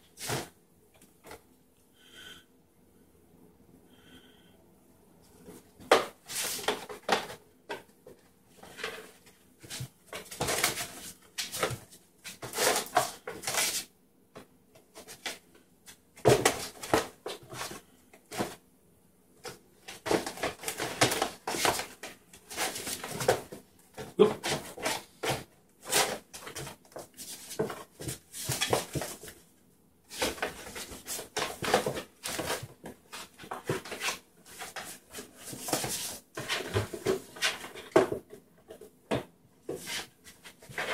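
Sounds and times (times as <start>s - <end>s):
cardboard rustling and knocking: 5.8s - 13.8s, 16.2s - 18.6s, 19.4s - 29.4s, 30.1s - 40.9s
cardboard box scraping on tile: 8.6s - 13.9s, 24.3s - 29.4s, 39.7s - 40.9s.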